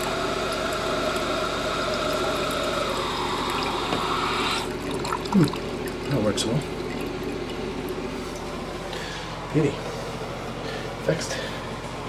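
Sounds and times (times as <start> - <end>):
valve shutting off: 0.0 - 4.8
toilet tank refilling hiss: 0.0 - 5.5.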